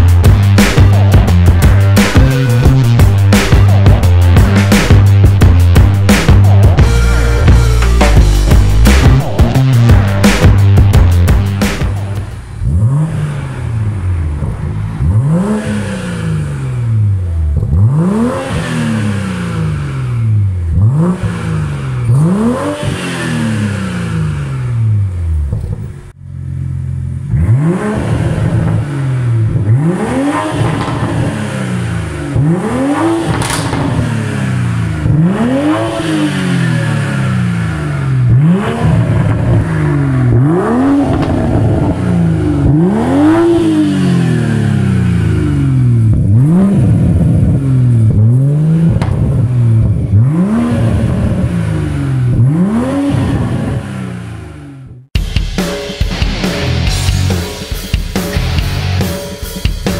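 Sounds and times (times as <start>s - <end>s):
car engine revving: 0.0s - 55.2s, 56.2s - 59.9s
exhaust pop: 17.4s - 18.6s, 28.0s - 35.6s, 38.2s - 43.8s, 45.2s - 53.8s.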